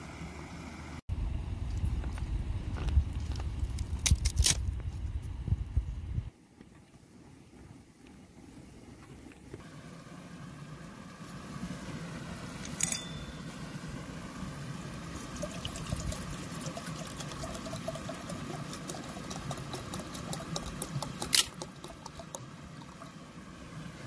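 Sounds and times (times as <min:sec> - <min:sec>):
water pouring into kettle: 0:15.2 - 0:23.2.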